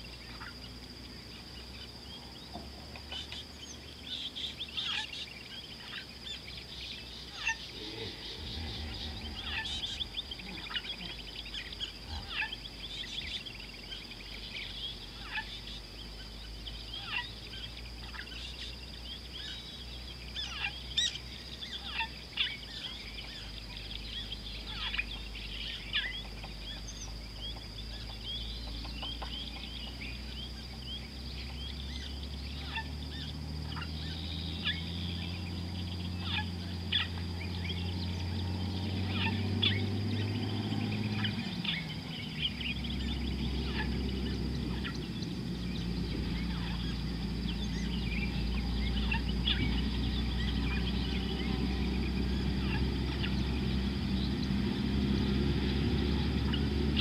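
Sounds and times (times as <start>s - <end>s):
steady high whine: 0.0s - 28.9s
birds chirping: 0.0s - 57.0s
low droning hum: 0.0s - 57.0s.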